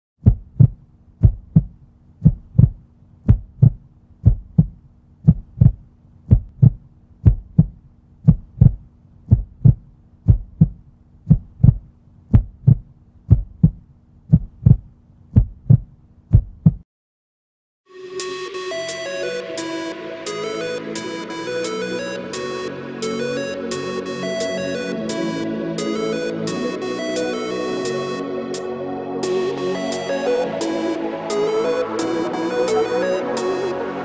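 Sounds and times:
heartbeat thumps: 0.2s - 16.8s.

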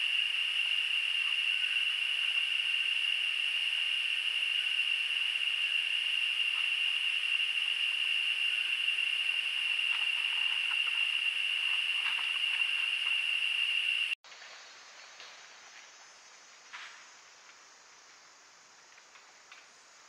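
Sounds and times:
insect chorus drone: 0.0s - 20.0s
quiet forest background: 0.0s - 20.0s.

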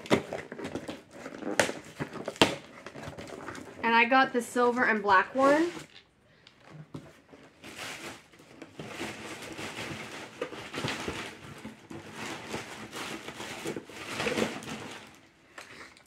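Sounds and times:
cardboard rustling and scraping: 0.0s - 4.0s, 6.7s - 15.3s.

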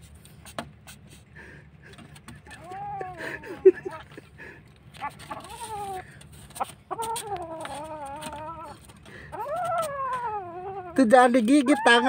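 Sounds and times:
kitten growling and yowling: 2.4s - 4.1s, 5.0s - 6.1s, 6.9s - 12.0s.

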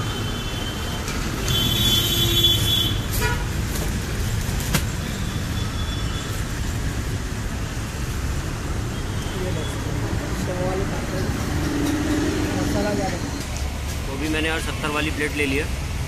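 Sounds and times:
road traffic rumble: 0.0s - 16.0s
vehicle horn honking: 1.5s - 3.5s.

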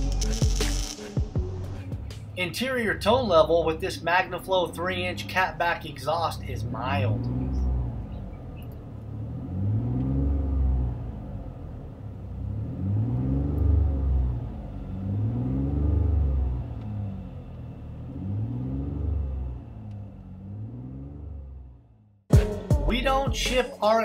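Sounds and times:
engine revving in short blips: 6.4s - 22.2s.

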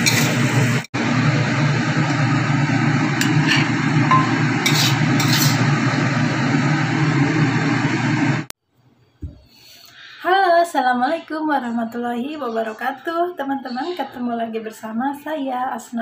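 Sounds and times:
spatula scraping a wok: 0.0s - 0.4s, 3.2s - 3.8s, 4.5s - 5.8s
food sizzling in a wok: 0.0s - 8.5s.

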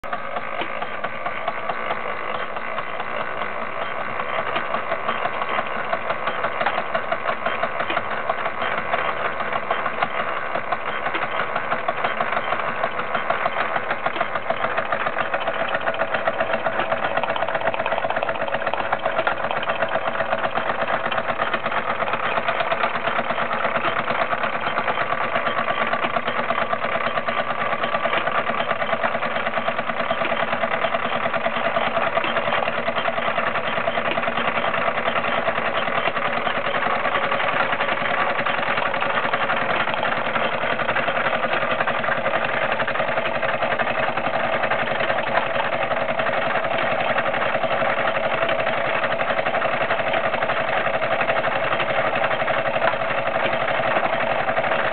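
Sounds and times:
toy steam engine chuffing: 0.0s - 54.9s.

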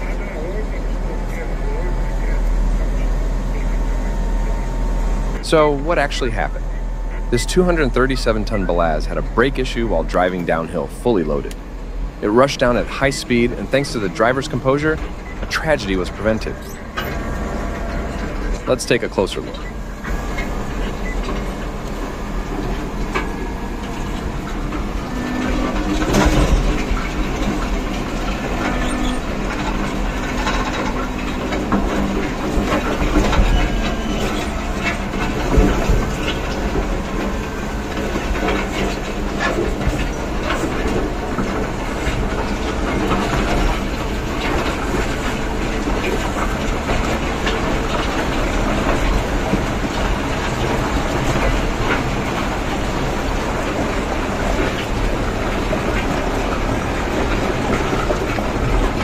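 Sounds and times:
diesel engine rumbling: 0.0s - 59.0s
machine rattling and clattering: 19.4s - 59.0s.

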